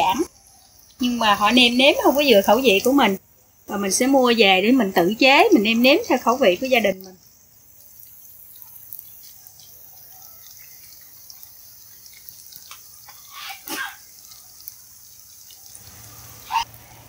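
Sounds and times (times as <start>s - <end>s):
oil sizzling in a frying pan: 0.0s - 17.0s
small oil pops: 8.0s - 9.5s, 11.3s - 13.9s.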